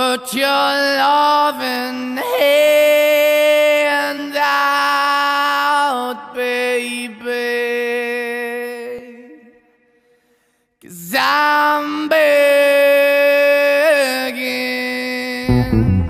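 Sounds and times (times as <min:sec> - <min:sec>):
music of long held notes: 0:15.5 - 0:16.0.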